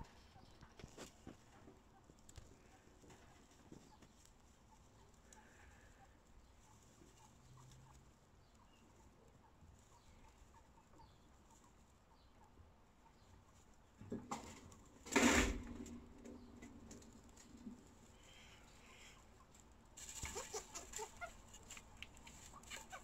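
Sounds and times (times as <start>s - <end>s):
chinchilla kits squeaking: 0.0s - 14.6s, 15.6s - 23.0s.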